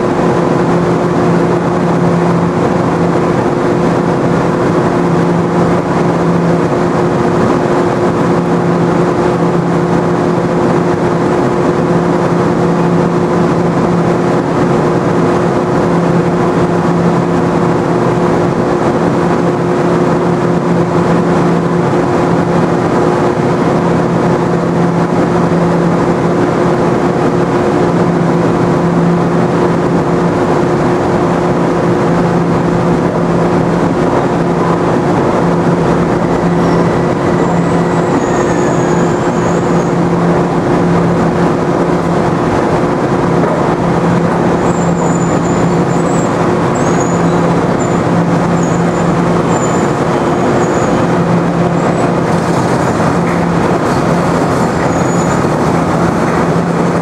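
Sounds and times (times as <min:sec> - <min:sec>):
electric train hum: 0:00.0 - 0:57.0
low tone: 0:31.8 - 0:57.0.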